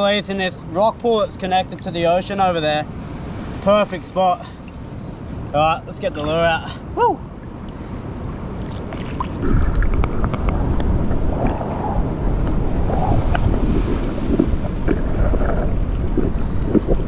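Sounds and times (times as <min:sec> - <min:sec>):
water sloshing and lapping: 0:03.0 - 0:17.0
low underwater rumble: 0:09.2 - 0:17.0.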